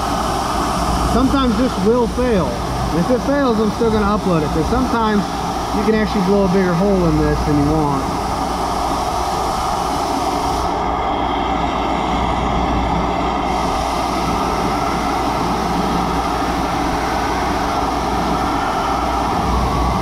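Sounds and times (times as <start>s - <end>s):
gas torch burning: 0.0s - 20.0s.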